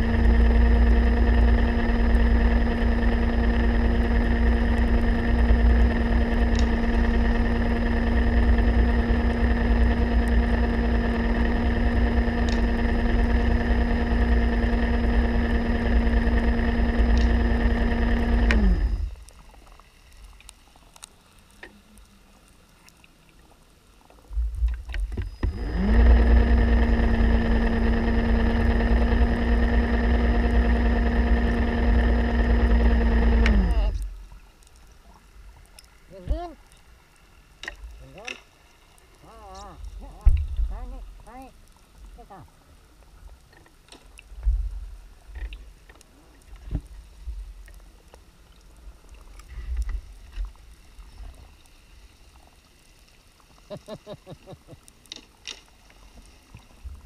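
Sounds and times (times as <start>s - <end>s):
underwater motor humming: 0.0s - 57.0s
faint clicks: 6.5s - 6.8s, 18.4s - 25.6s.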